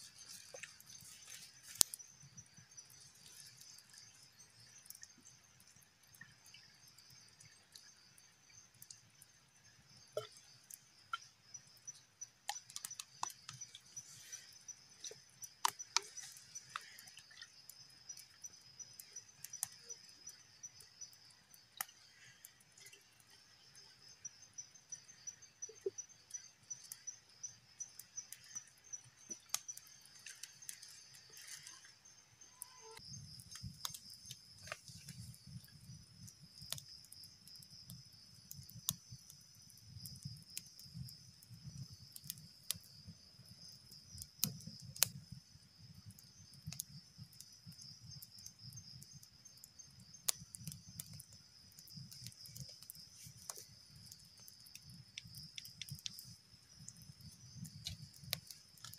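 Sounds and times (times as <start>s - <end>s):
insects trilling: 0.0s - 58.9s.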